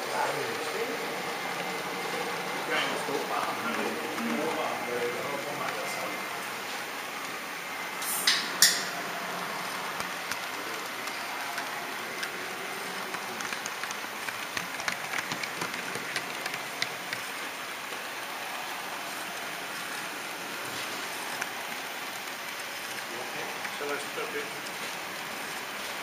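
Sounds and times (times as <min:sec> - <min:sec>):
model train rushing noise: 0:00.0 - 0:08.0, 0:09.0 - 0:26.0
short sharp hisses: 0:08.0 - 0:08.4.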